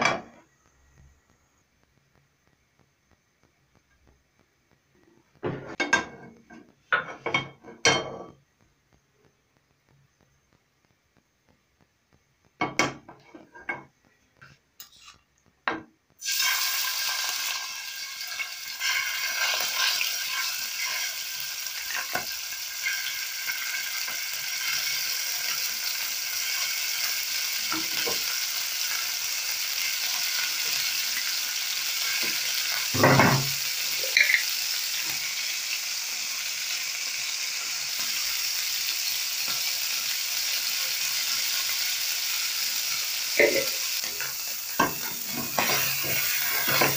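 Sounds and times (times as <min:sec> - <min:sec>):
chicken sizzling in hot oil: 0:16.2 - 0:46.9.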